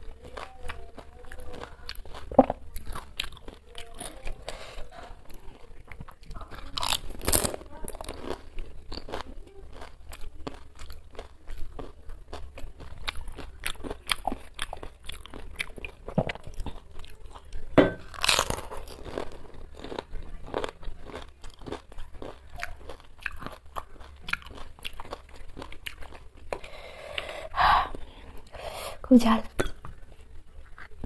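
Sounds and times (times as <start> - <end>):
crisp shells crunching while chewing: 0.0 - 28.6, 29.7 - 31.0.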